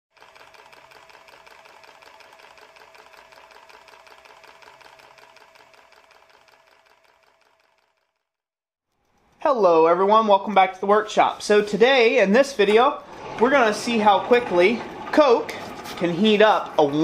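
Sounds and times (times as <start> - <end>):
small machine clattering: 0.1 - 8.3.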